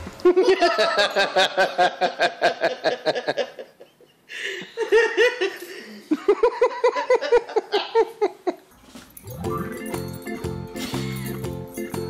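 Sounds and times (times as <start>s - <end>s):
hearty laughter: 0.2s - 8.7s.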